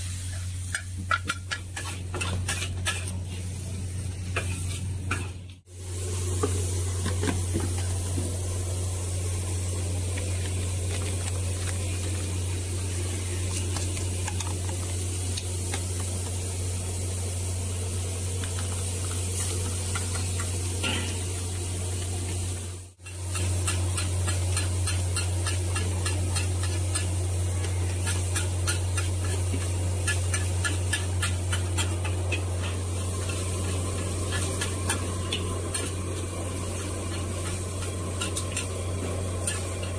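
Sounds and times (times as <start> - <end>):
noodles sizzling in a wok: 0.0 - 39.9
metal spatula scraping wok: 1.3 - 3.5, 23.0 - 39.9.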